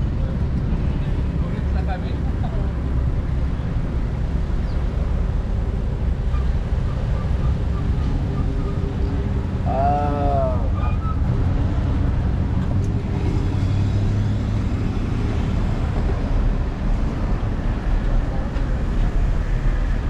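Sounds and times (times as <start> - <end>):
low street and riding rumble: 0.0 - 20.0
person calling out: 9.7 - 10.7.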